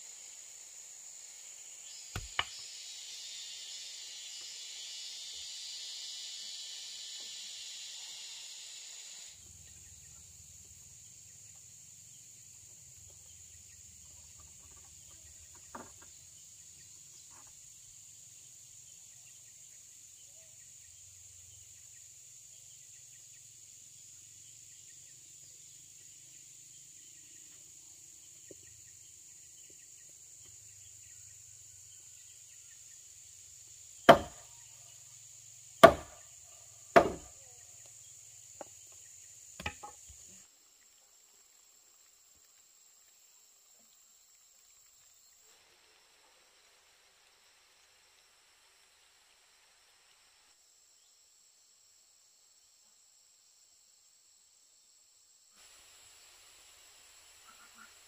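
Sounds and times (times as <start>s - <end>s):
high-pitched insect drone: 0.0s - 40.5s
hammer knocking on wood: 34.1s - 34.4s, 35.8s - 36.2s, 37.0s - 37.3s.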